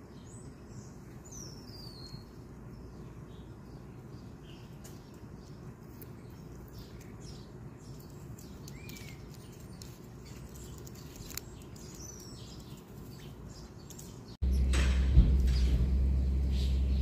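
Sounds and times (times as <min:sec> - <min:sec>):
distant bird chirps: 0:00.0 - 0:17.0
steady low rumble: 0:14.4 - 0:17.0.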